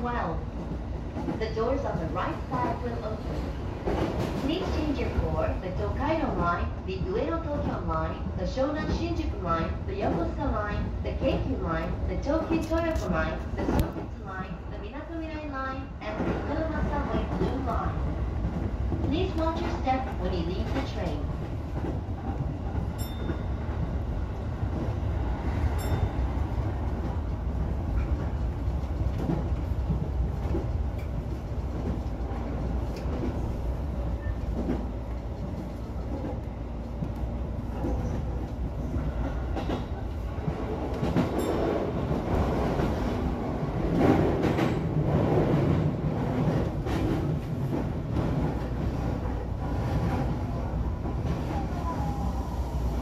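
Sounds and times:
train wheels rumbling on rails: 0.0 - 53.0
rail joint clicks: 11.1 - 14.3, 16.0 - 51.6.

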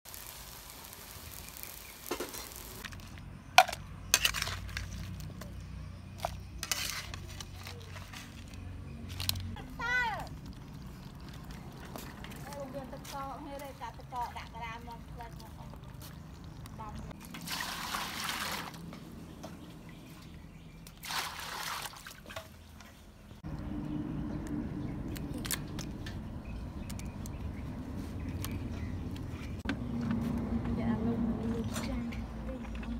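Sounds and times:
faint sizzling from wok: 0.1 - 2.8
water pouring into steel basin: 17.2 - 18.8.

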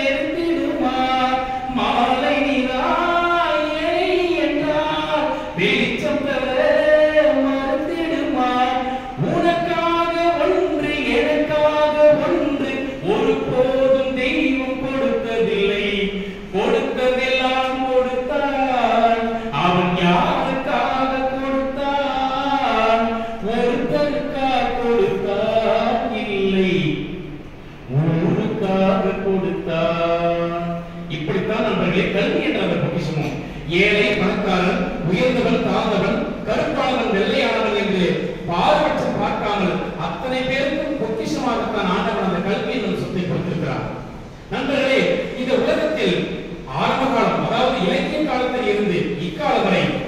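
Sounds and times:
man singing over public address: 0.0 - 27.0
man chanting through loudspeaker: 0.0 - 50.0.

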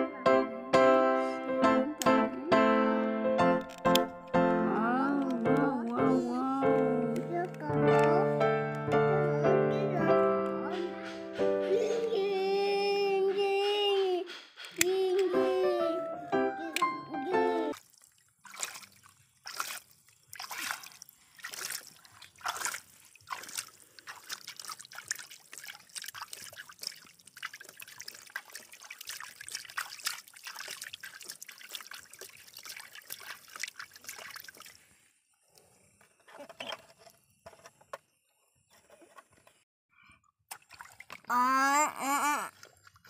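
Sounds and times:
hands splashing muddy water: 17.7 - 34.8, 40.5 - 41.3
mud splattering into puddle: 17.7 - 34.8.

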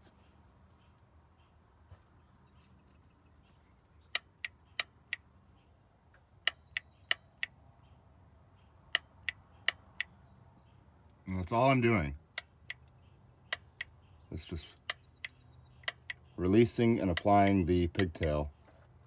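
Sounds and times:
solenoid clicking: 14.8 - 16.2, 17.1 - 18.3.

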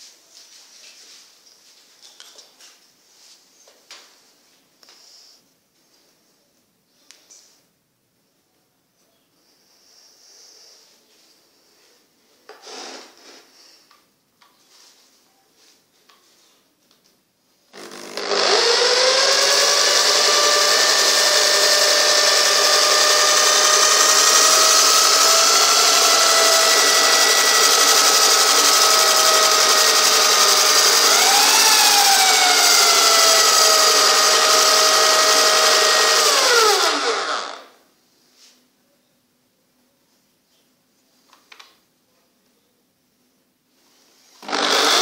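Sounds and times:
electric drill motor whine: 17.8 - 37.8, 44.4 - 45.0.

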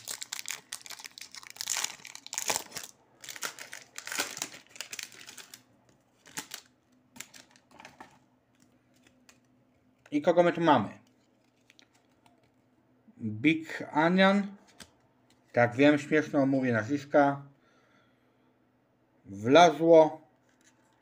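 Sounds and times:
plastic pack crinkling: 0.0 - 10.1, 11.1 - 12.6.

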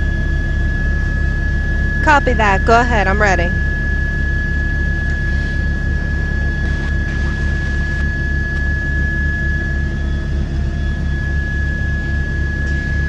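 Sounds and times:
helicopter engine and rotor drone: 0.0 - 13.0
high-pitched whine: 0.0 - 13.0.

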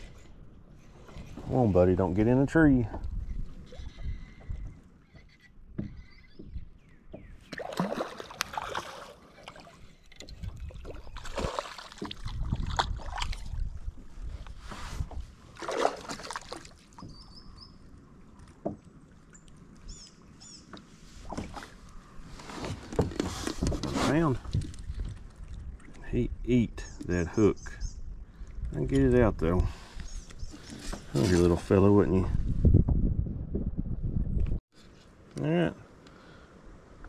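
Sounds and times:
handling noise on plastic kayak: 20.6 - 25.6, 30.3 - 31.6.

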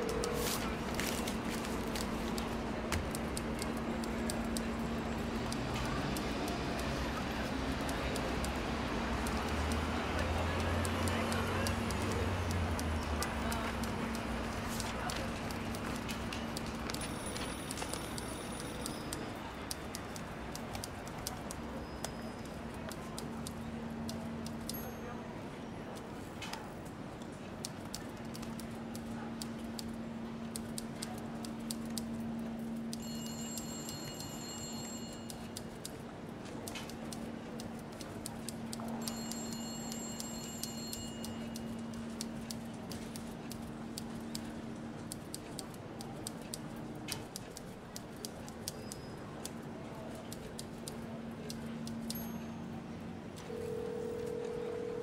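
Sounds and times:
sharp clicks and ticks: 0.0 - 24.9, 26.0 - 52.4
high chime-like tones: 33.0 - 35.3, 39.0 - 41.5.

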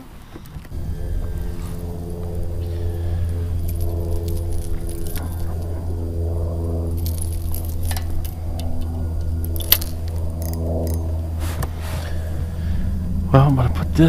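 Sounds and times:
steady low hum: 0.0 - 14.0
fishing lure hooks jingling: 9.5 - 11.1.

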